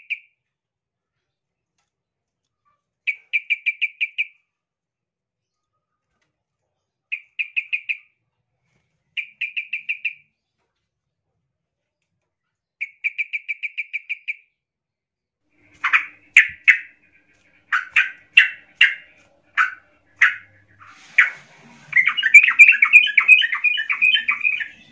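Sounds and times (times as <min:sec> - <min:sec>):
birds chattering rapidly: 0:15.6 - 0:24.9
harsh bird calls: 0:15.6 - 0:24.9.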